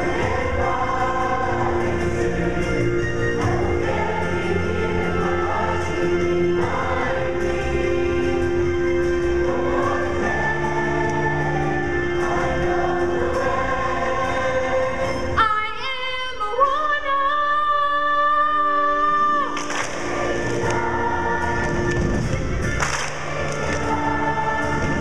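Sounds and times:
instrumental accompaniment: 0:00.0 - 0:15.6
youth choir singing: 0:00.0 - 0:25.0.

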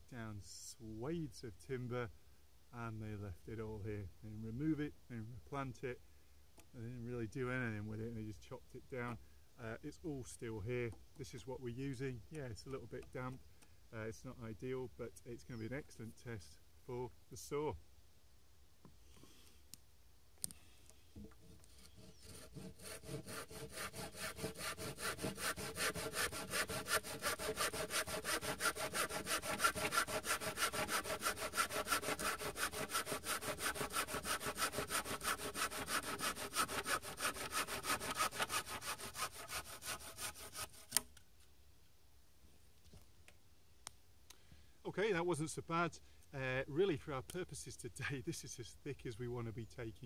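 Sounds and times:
hand saw cutting branch: 0:21.4 - 0:41.1.

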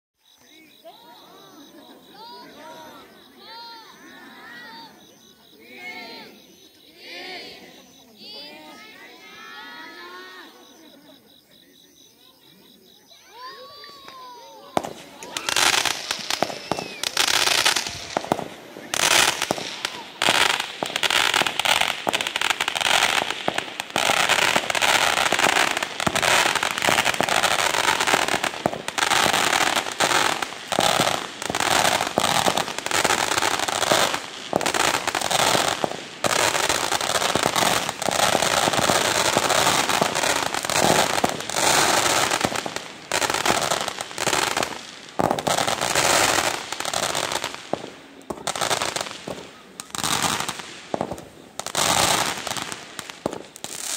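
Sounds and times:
fireworks hissing and crackling: 0:00.2 - 0:06.9, 0:07.5 - 0:53.9
fireworks sharp pops: 0:13.7 - 0:53.9.

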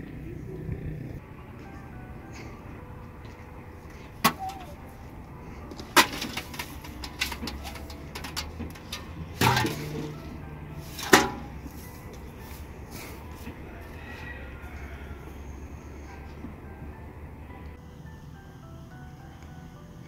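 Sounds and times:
light clicks and rustles: 0:05.6 - 0:10.2
containers knocking on trough: 0:06.0 - 0:10.2.

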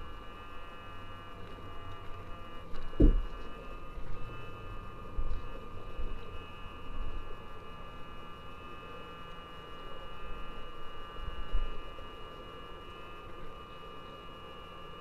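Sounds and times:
high-pitched hum: 0:00.0 - 0:15.0.

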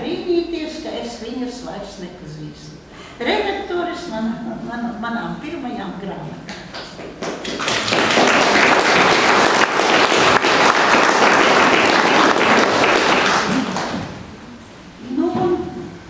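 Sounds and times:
audience applauding: 0:06.8 - 0:14.2.

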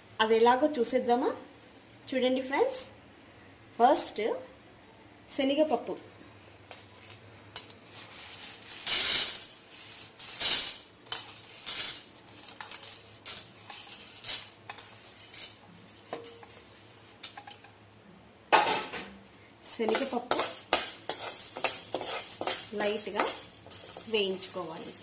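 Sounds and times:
dry grains rattling on steel plate: 0:07.6 - 0:17.8, 0:19.7 - 0:25.0.

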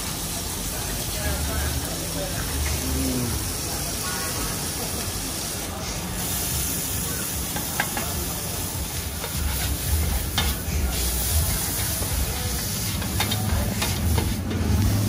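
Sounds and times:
food sizzling on a steel pan: 0:00.0 - 0:15.0
metal spatulas scraping a pan: 0:09.2 - 0:12.0, 0:12.6 - 0:14.7.

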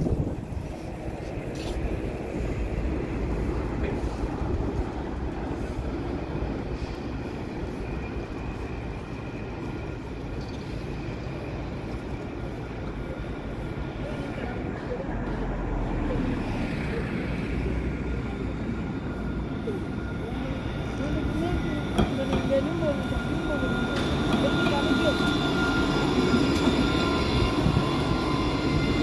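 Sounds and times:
wind on microphone: 0:00.0 - 0:06.7
tram rumbling on track: 0:00.0 - 0:29.0.

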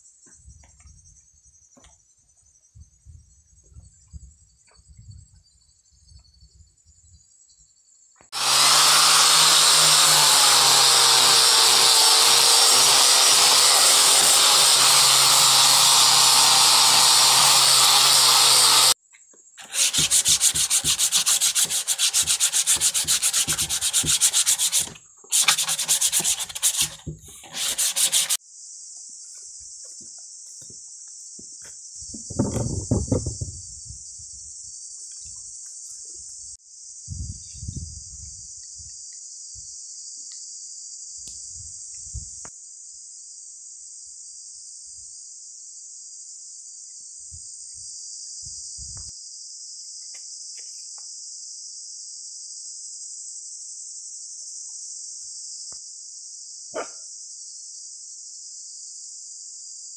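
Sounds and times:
crickets chirping: 0:00.0 - 0:08.3, 0:27.0 - 0:59.9
power sander on wood: 0:08.4 - 0:19.0, 0:19.6 - 0:28.4
sandpaper rubbed by hand: 0:19.6 - 0:28.4.

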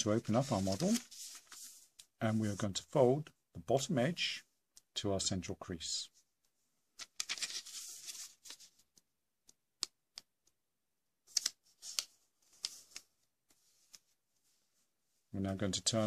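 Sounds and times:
paper crackling: 0:00.0 - 0:02.1, 0:07.0 - 0:09.6, 0:11.3 - 0:14.0
paper rustling: 0:00.0 - 0:02.6, 0:07.0 - 0:09.0, 0:11.3 - 0:14.8.

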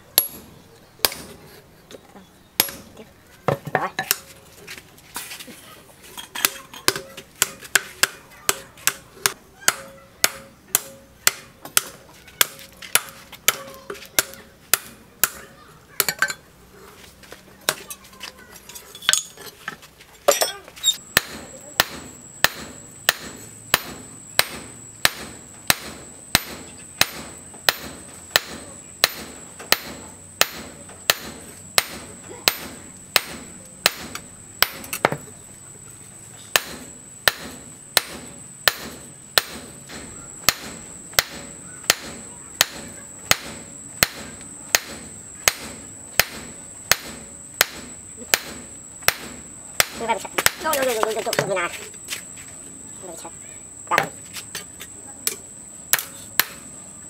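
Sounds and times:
hammer striking steel on anvil: 0:00.2 - 0:01.4, 0:02.6 - 0:02.9, 0:06.2 - 0:15.4, 0:20.3 - 0:35.2, 0:36.5 - 0:50.6.

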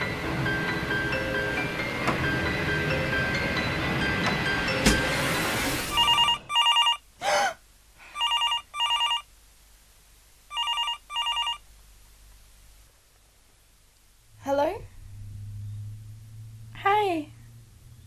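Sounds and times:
music: 0:00.0 - 0:06.4
telephone double ring: 0:05.9 - 0:07.0
sweeping whoosh: 0:14.9 - 0:16.8.

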